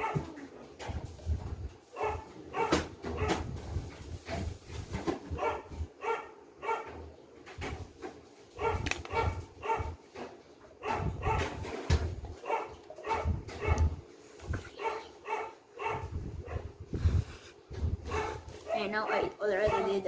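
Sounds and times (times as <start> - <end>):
dog barking: 0.0 - 0.3, 1.9 - 3.4, 5.4 - 7.0, 8.6 - 10.0, 10.8 - 11.6, 12.4 - 14.0, 14.7 - 16.7, 18.0 - 20.0.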